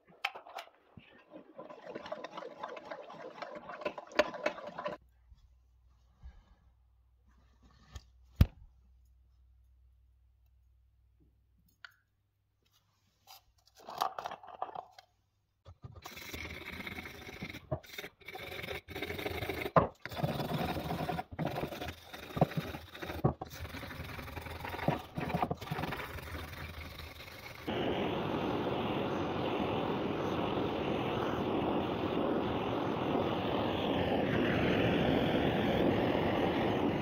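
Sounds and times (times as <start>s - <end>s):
brush scrubbing metal piston: 16.0s - 27.7s.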